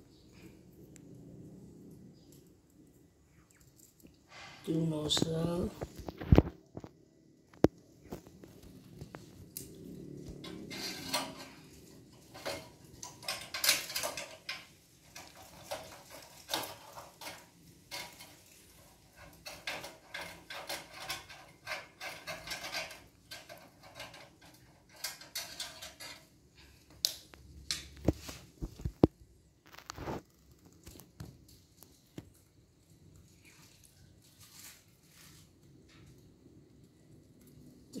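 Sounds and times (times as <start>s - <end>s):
screwdriver scraping metal burner: 10.3s - 26.4s.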